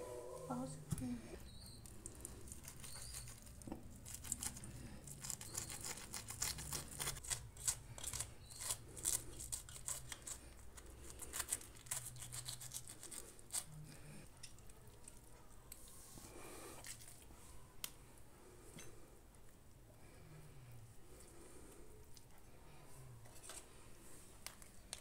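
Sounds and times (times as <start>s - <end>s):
knife scraping and slicing flesh: 2.4s - 13.8s.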